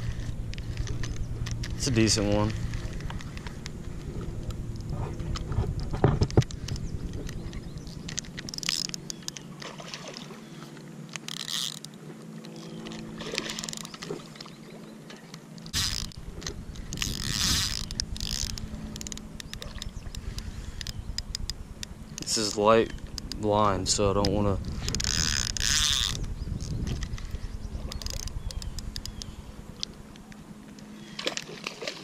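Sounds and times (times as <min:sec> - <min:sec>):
steady low hum: 0:00.0 - 0:32.0
fishing reel cranking: 0:06.4 - 0:09.4, 0:11.1 - 0:14.0, 0:15.7 - 0:23.5, 0:24.2 - 0:29.4.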